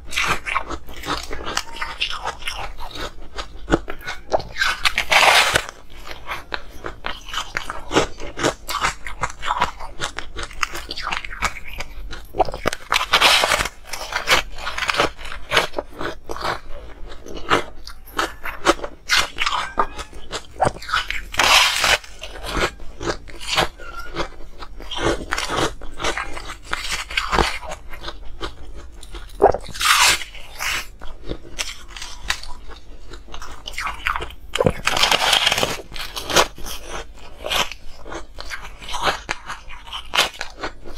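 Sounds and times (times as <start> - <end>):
crackly crunches of chewed ice: 0.0 - 40.9
loud crunching bite of ice: 0.1 - 40.9.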